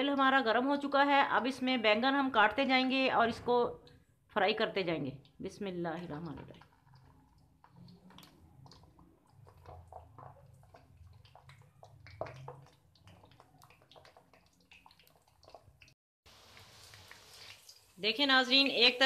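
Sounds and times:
slices sizzling in hot oil: 14.7 - 19.0.

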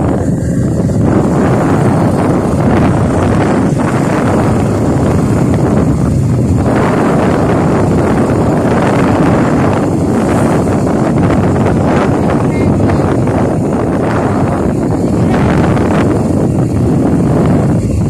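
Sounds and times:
road vehicle running: 0.0 - 18.0
wind buffeting microphone: 0.0 - 18.0.

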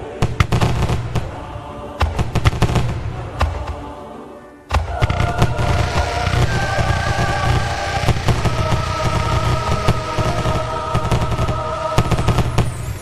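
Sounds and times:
fireworks shells bursting: 4.8 - 13.0.

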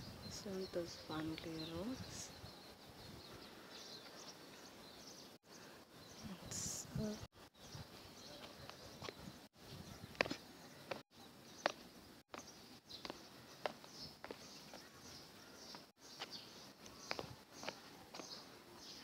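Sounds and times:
faint outdoor background: 0.0 - 19.0
footsteps on stone paving: 7.9 - 19.0.

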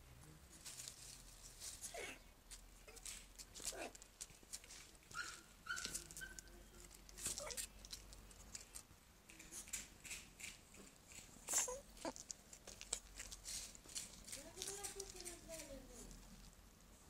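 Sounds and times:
small animal squeaky whines: 5.1 - 6.6, 11.5 - 12.2.

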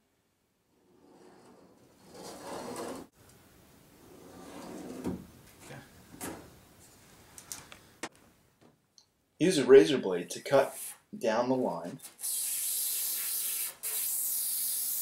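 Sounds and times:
pencil scraping along metal square: 1.0 - 3.1.

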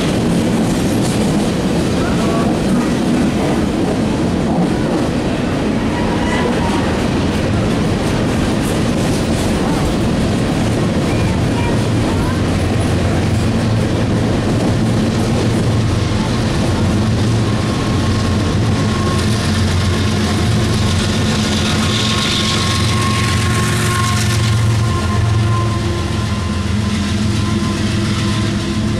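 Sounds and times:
diesel locomotive engine hum: 0.0 - 28.9
train cars rolling on rails: 0.0 - 28.9.

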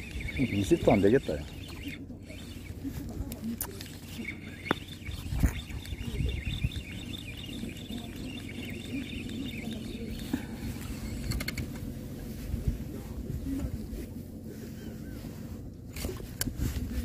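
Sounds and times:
fishing reel whirring: 0.0 - 11.7
wind rumbling on microphone: 4.2 - 17.0.

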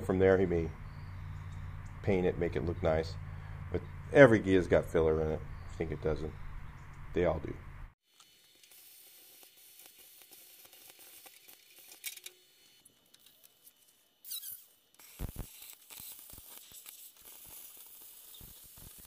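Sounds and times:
air cut-off tool hissing: 14.3 - 19.0.

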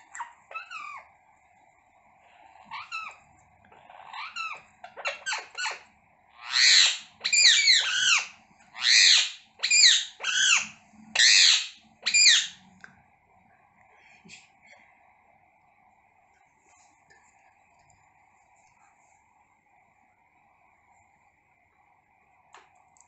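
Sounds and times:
parakeets squawking: 0.0 - 1.1, 2.7 - 5.8, 6.4 - 12.6.

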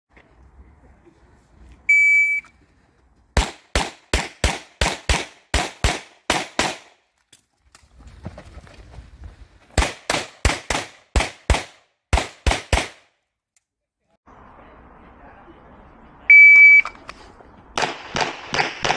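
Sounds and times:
shot timer beep: 1.9 - 2.5, 16.3 - 17.0
handgun shots: 3.4 - 6.9.

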